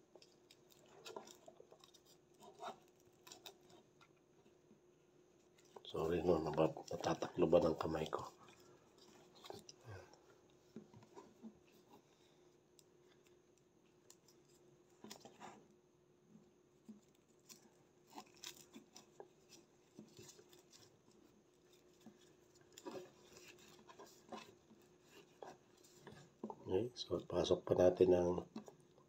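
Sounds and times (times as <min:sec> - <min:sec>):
rope rustling and scratching: 0:00.0 - 0:04.6, 0:05.4 - 0:15.8, 0:16.7 - 0:26.7.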